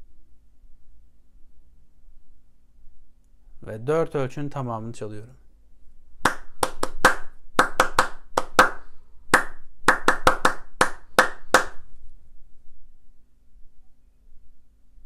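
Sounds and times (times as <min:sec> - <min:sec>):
hand claps in rhythm: 0:06.2 - 0:11.8.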